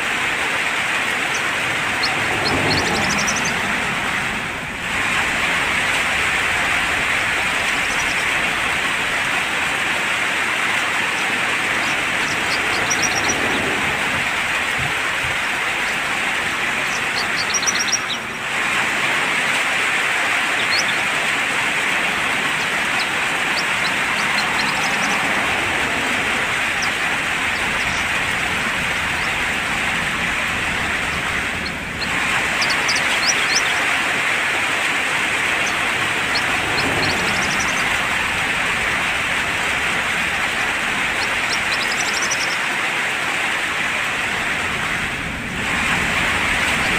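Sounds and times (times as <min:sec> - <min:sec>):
rain hissing: 0:00.0 - 0:46.9
bird chirps: 0:01.2 - 0:03.6, 0:11.1 - 0:13.8, 0:16.8 - 0:18.3, 0:20.6 - 0:21.0, 0:22.3 - 0:25.3, 0:26.2 - 0:28.2, 0:31.0 - 0:33.8, 0:35.6 - 0:37.9, 0:41.1 - 0:42.6.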